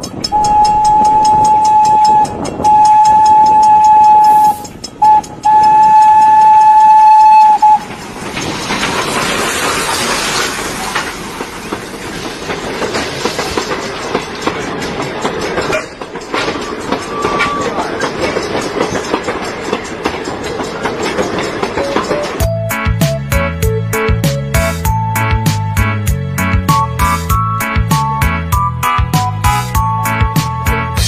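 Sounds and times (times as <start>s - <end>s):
train engine and wheel noise: 0.0s - 31.0s
locomotive horn blasts: 0.3s - 7.9s.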